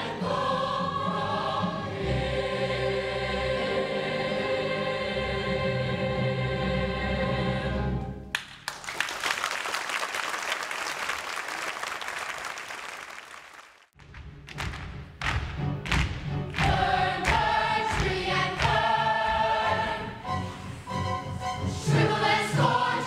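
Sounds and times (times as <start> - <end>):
audience applause: 8.4 - 13.9.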